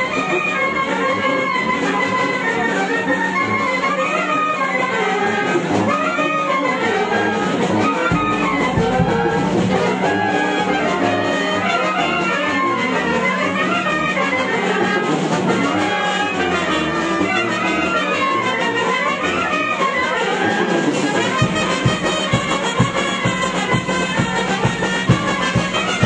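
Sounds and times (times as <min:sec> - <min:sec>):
brass band music: 0:00.0 - 0:26.0
steady low beats: 0:08.0 - 0:10.4.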